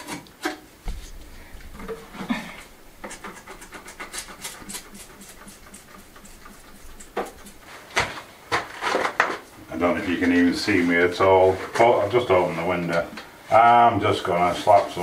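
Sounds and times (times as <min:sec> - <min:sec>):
stiff brush scrubbing wood: 0:00.8 - 0:08.1.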